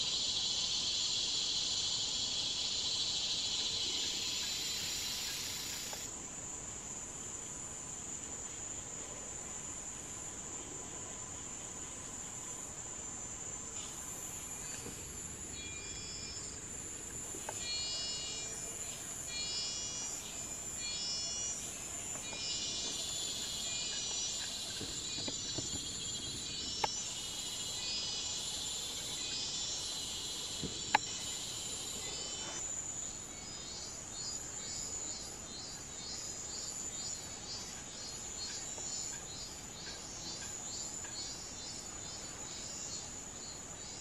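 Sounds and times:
insects droning and chirping: 0:00.0 - 0:44.0.

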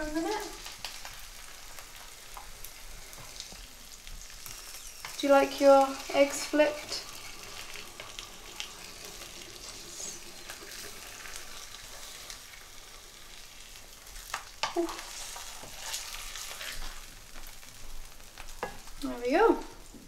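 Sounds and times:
eggs sizzling in hot oil: 0:00.0 - 0:20.0.

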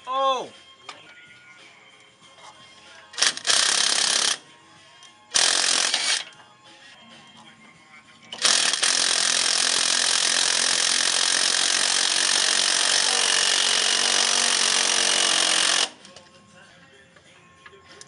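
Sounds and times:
power wrench spinning a bolt: 0:03.2 - 0:04.4, 0:05.3 - 0:06.4, 0:08.3 - 0:16.2.

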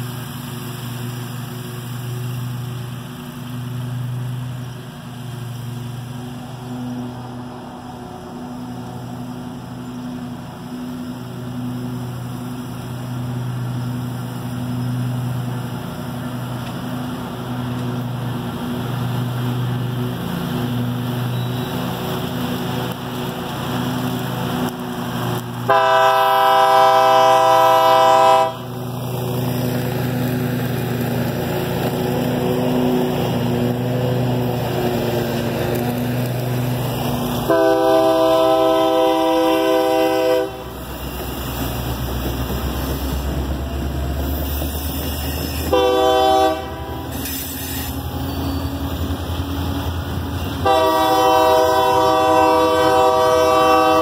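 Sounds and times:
locomotive engine drone: 0:00.0 - 0:54.0
locomotive air horn: 0:25.7 - 0:28.7, 0:37.5 - 0:40.8, 0:45.4 - 0:48.7, 0:50.6 - 0:54.0.

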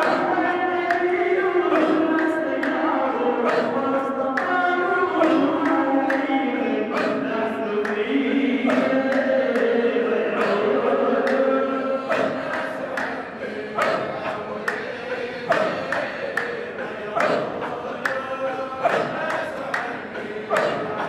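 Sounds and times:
voices chanting together: 0:00.0 - 0:21.0
steady percussive beat: 0:04.4 - 0:06.3, 0:12.0 - 0:21.0.

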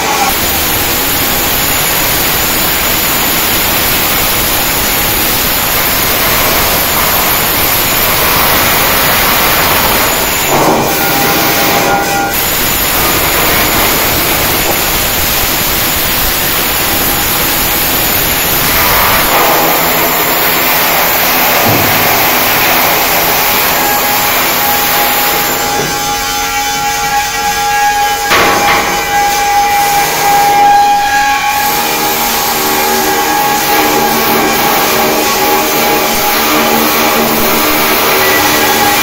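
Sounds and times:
welding arc crackling hiss: 0:00.0 - 0:39.0.

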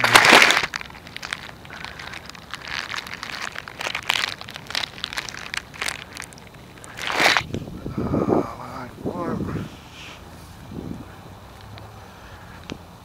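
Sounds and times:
microphone rubbing and rustling: 0:06.8 - 0:11.1.

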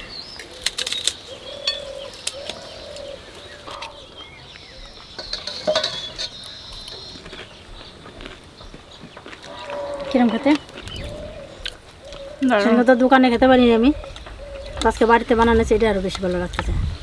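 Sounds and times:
birds chirping: 0:00.0 - 0:17.0
spoons clinking on plates: 0:05.2 - 0:06.5.

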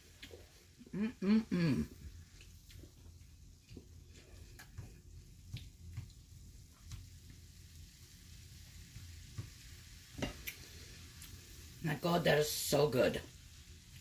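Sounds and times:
food sizzling in a skillet: 0:00.0 - 0:00.8, 0:01.8 - 0:14.0.

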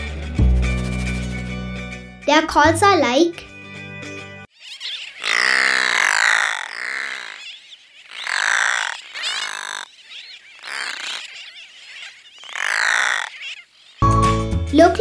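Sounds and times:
seabird calling: 0:04.5 - 0:14.2.

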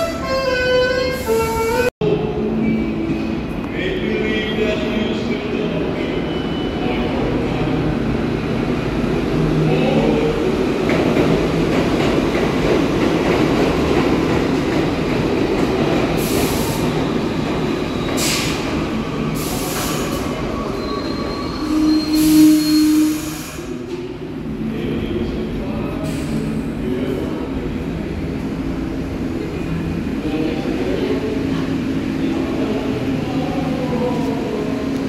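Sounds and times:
subway train rumbling: 0:00.0 - 0:35.0
high squeal: 0:20.4 - 0:23.6.

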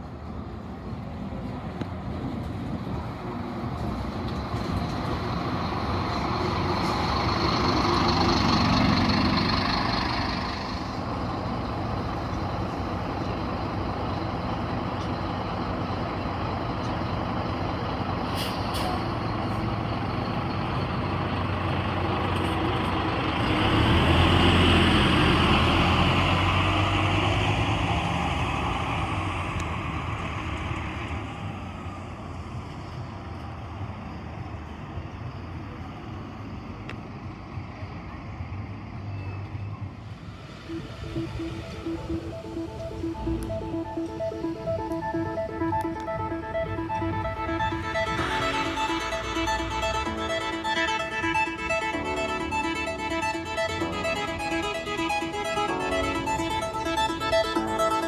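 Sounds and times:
bus engine running: 0:00.0 - 0:58.0
air brake hiss: 0:18.3 - 0:19.0.

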